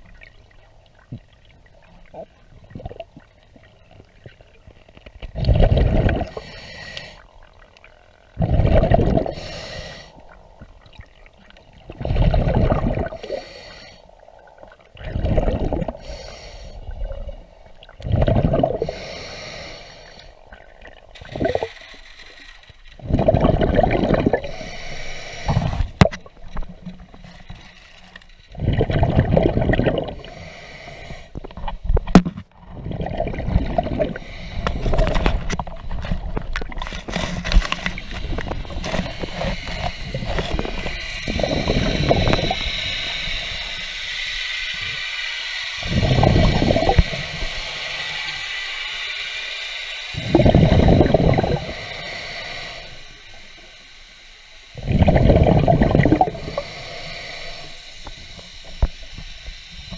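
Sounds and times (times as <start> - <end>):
rush of bubbles: 5.4 - 6.4, 8.4 - 9.4, 11.8 - 13.4, 14.9 - 16.0, 16.9 - 19.0, 20.5 - 21.7, 23.0 - 24.6, 28.6 - 30.3, 32.6 - 35.6, 45.8 - 48.0, 50.1 - 51.8, 54.8 - 56.7
diver breathing through regulator: 5.4 - 7.3, 8.4 - 10.4, 12.0 - 17.2, 18.0 - 20.6, 21.2 - 26.0, 28.6 - 31.6, 33.4 - 35.4, 36.8 - 48.8, 50.0 - 53.9, 54.6 - 59.9.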